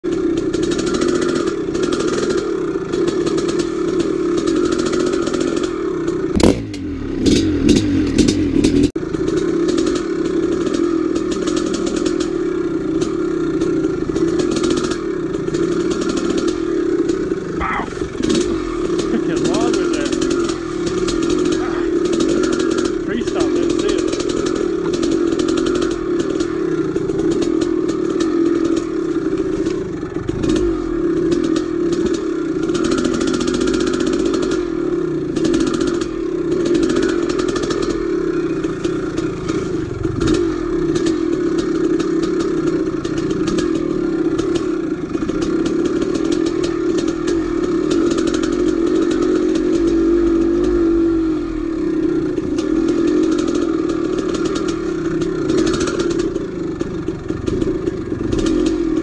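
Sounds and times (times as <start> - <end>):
dirt bike engine under load: 13.0 - 34.6.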